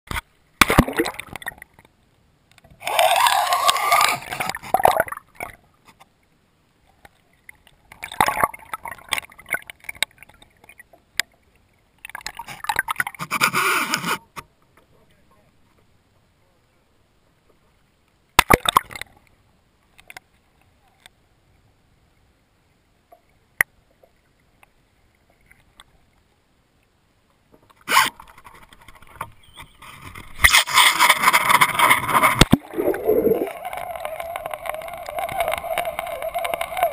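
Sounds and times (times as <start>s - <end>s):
water splashing and gurgling: 0.1s - 2.0s, 2.7s - 5.9s, 6.9s - 14.2s, 18.4s - 19.2s, 27.8s - 36.9s.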